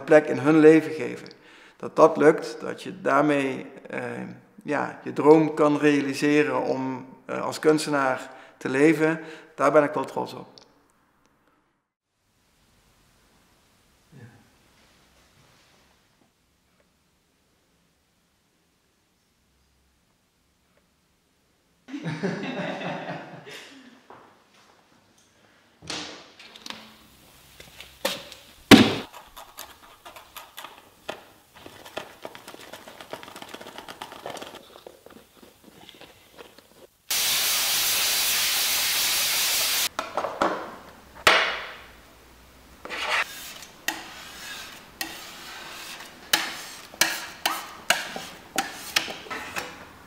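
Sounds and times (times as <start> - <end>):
loud steady hiss: 37.0 - 39.9.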